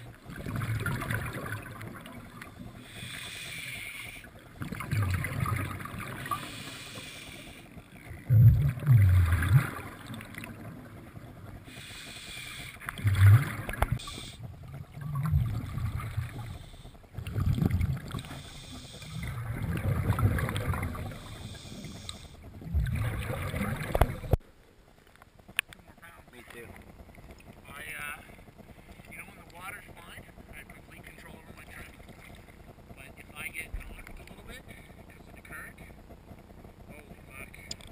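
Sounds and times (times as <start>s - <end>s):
exhaled bubbles rumbling: 0.0s - 24.4s
diver breathing through regulator: 2.7s - 4.4s, 6.2s - 7.9s, 11.6s - 14.5s, 16.0s - 17.4s, 18.1s - 19.6s, 20.9s - 22.5s.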